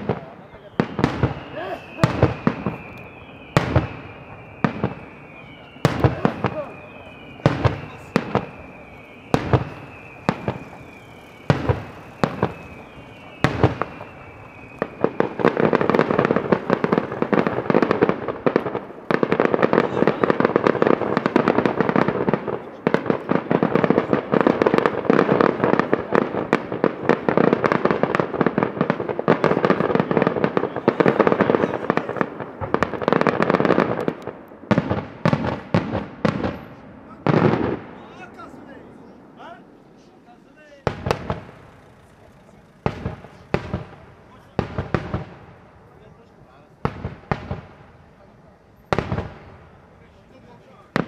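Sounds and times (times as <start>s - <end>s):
firework crackle: 0.0s - 51.0s
firework whistle sliding down: 0.4s - 18.3s.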